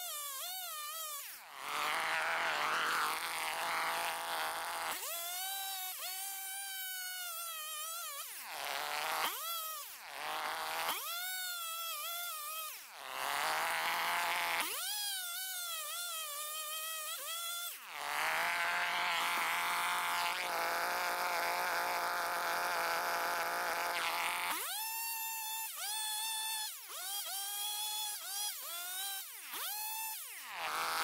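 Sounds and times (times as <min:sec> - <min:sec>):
chainsaw cutting log: 0:00.0 - 0:31.0.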